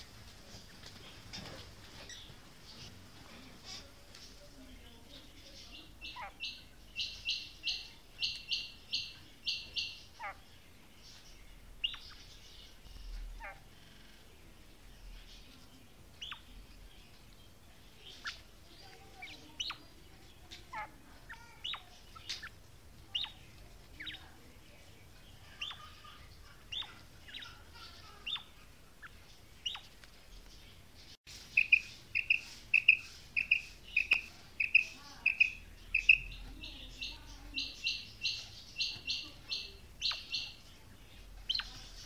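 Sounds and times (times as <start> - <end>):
bird chirps falling in pitch: 31.6 - 36.7
quail calling: 31.6 - 40.6.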